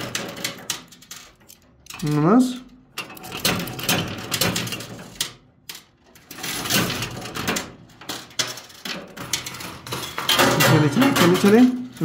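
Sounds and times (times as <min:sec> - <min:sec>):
coins clinking in arcade machine: 0:00.0 - 0:12.0.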